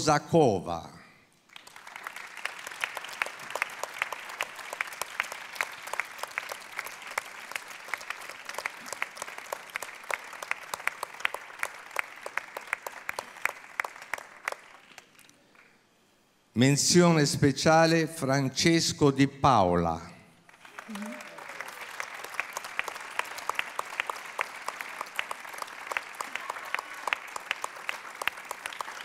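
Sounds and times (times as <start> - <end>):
crowd applause: 1.5 - 15.3, 20.5 - 29.0.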